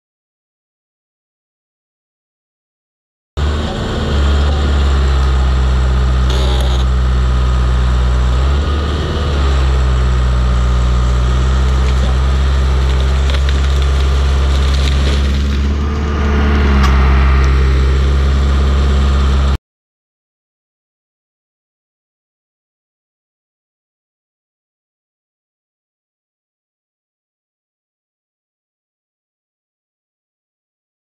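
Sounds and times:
bulldozer diesel engine under load: 0:03.4 - 0:19.6.

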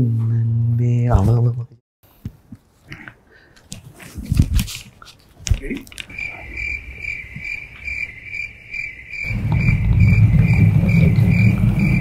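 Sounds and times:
cricket chirping: 0:05.6 - 0:12.0
loud low rumble: 0:09.3 - 0:12.0.

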